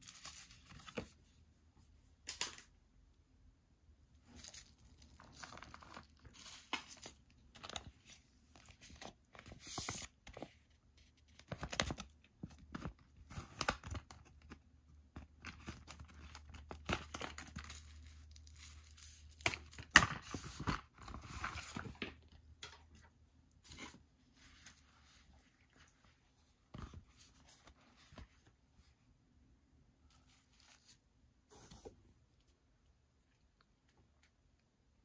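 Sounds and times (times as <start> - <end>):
plastic packaging crinkling and tearing: 4.3 - 10.2, 15.4 - 22.1.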